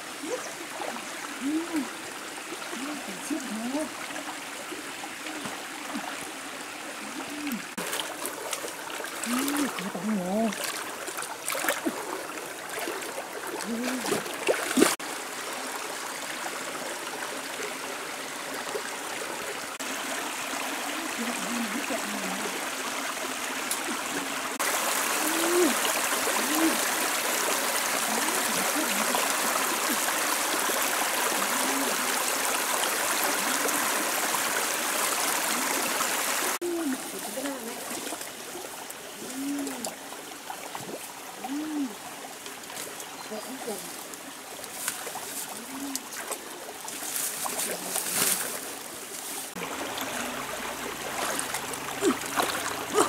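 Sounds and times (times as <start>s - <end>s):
stream flowing over rocks: 0.0s - 53.0s
person wading through water: 2.7s - 15.0s, 34.8s - 53.0s.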